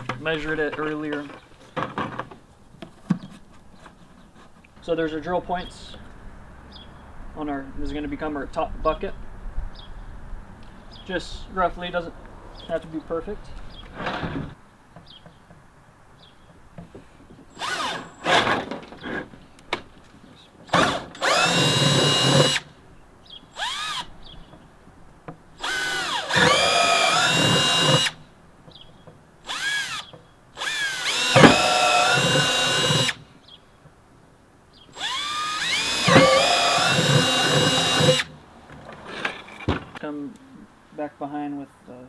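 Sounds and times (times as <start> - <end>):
cordless drill whine: 17.5 - 18.5, 20.8 - 22.7, 23.6 - 24.1, 25.6 - 28.2, 29.4 - 33.2, 34.9 - 38.3.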